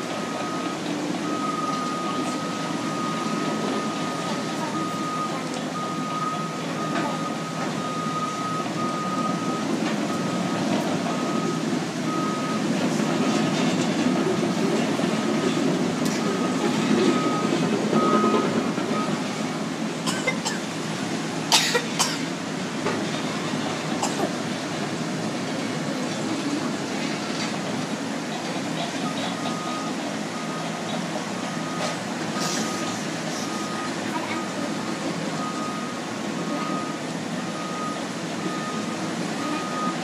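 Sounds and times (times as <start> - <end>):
heavy machinery running: 0.0 - 40.0
back-up alarm beeping: 0.1 - 12.7, 15.2 - 19.4, 29.0 - 40.0.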